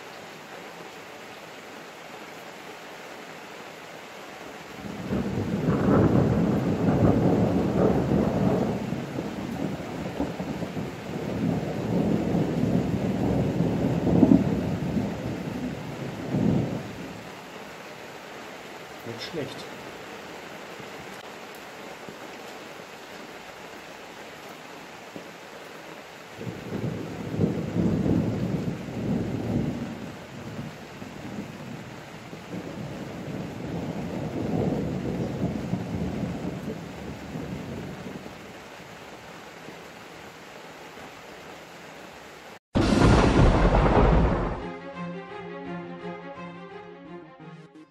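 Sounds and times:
rain falling: 0.0 - 44.8
thunder rolling: 4.8 - 17.0, 26.4 - 38.2, 42.8 - 44.7.

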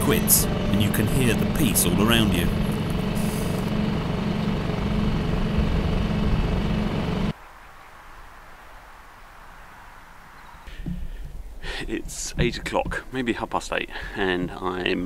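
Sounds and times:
outboard motor running: 0.0 - 7.3
faint hiss: 7.4 - 12.2.

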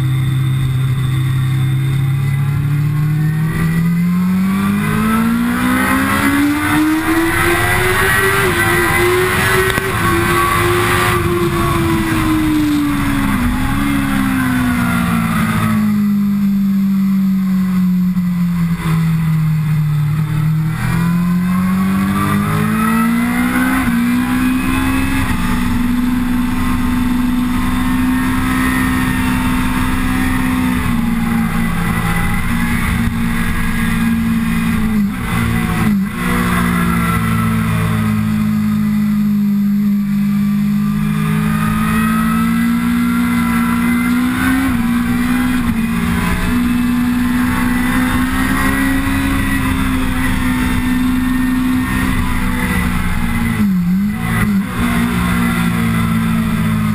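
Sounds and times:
motorcycle engine revving: 0.0 - 56.9.

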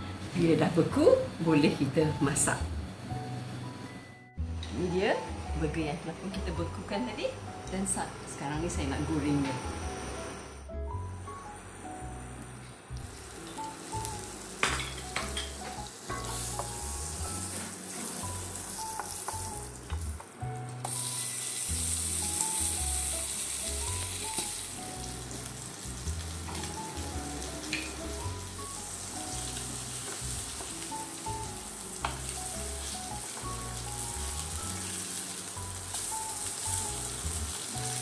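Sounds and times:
burger patty frying: 11.4 - 38.0
butter sizzling in a frying pan: 12.9 - 38.0.

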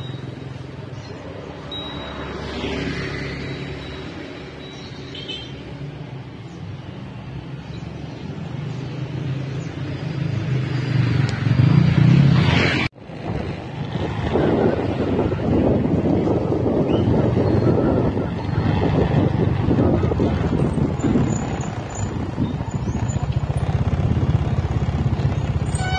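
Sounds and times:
motorbike engine approaching: 9.1 - 25.9
wind buffeting microphone: 13.0 - 25.7.

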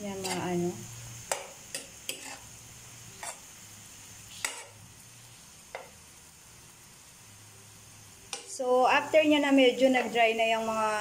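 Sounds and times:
metal spoon scraping a pan: 0.0 - 0.6, 1.2 - 3.5, 4.3 - 4.8, 8.3 - 8.6
meat sizzling in a frying pan: 0.0 - 11.0.

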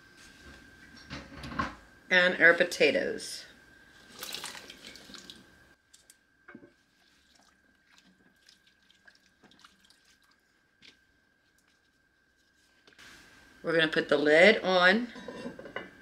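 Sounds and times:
liquid sloshing: 4.0 - 12.6
potatoes splashing into broth: 4.1 - 5.4
wooden spoon stirring soup: 4.4 - 13.0.

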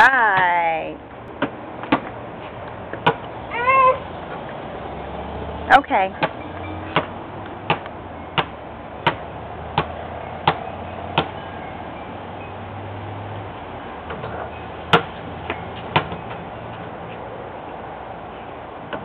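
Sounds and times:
basketball bouncing on concrete: 0.3 - 0.6, 1.4 - 2.2, 2.9 - 3.3, 6.2 - 11.4, 14.9 - 16.4.

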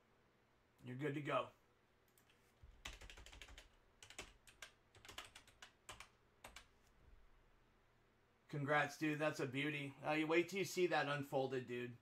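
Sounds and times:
faint keyboard typing: 2.0 - 6.9.

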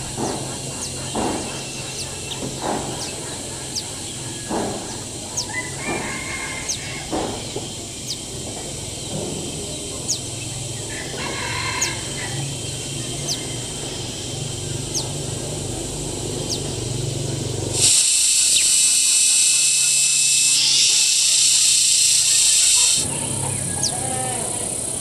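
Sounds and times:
outdoor background noise: 0.0 - 25.0
rooster crowing: 5.2 - 7.4, 10.8 - 14.1, 19.0 - 24.8.

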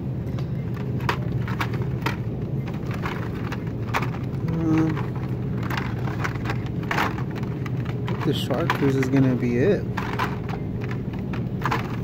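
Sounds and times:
low background hum: 0.0 - 12.0
plastic blister cards clicking: 0.4 - 12.0.

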